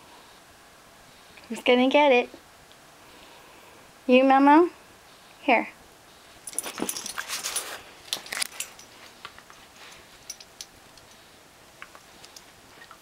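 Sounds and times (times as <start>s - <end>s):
dogs scuffling: 6.4s - 10.4s
collar tags jingling: 6.4s - 11.3s.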